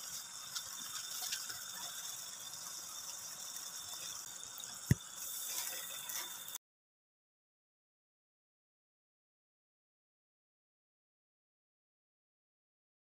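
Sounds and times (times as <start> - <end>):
sauce sizzling and bubbling: 0.0 - 6.6.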